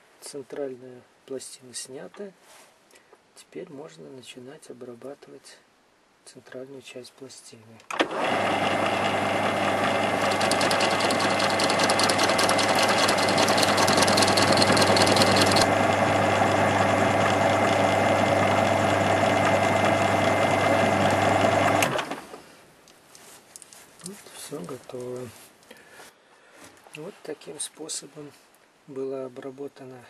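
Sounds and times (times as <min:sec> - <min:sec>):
metal lathe running: 0:08.1 - 0:22.0.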